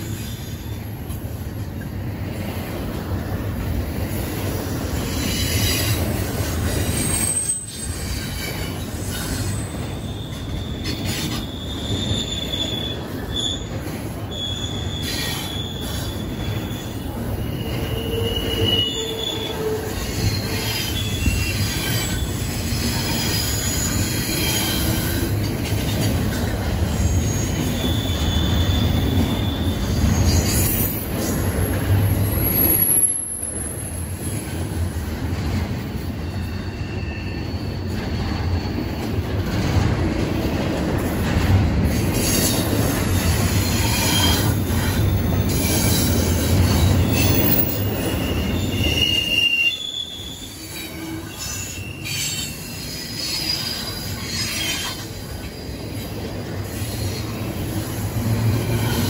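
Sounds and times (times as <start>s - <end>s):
train wheels rumbling on rail: 0.0s - 59.0s
high-pitched wheel squeals: 6.7s - 25.3s, 26.9s - 31.2s, 36.2s - 39.1s, 43.2s - 55.1s.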